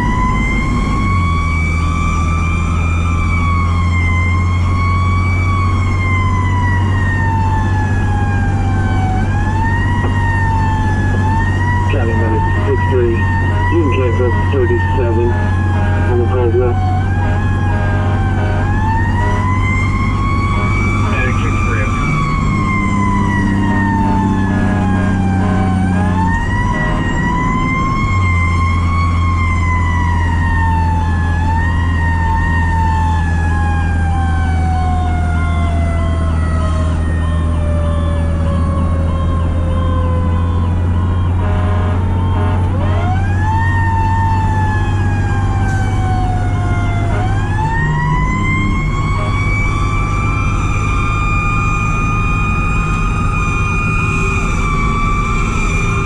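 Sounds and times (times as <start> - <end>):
mechanical siren wailing: 0.0 - 56.0
steady low drone: 6.0 - 29.8.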